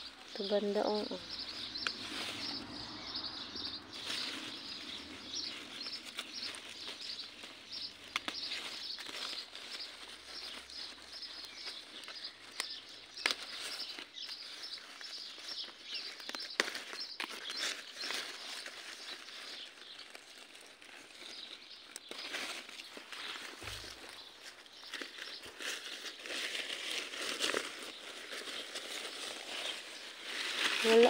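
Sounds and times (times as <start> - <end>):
small bird chirping: 0.0 - 31.0.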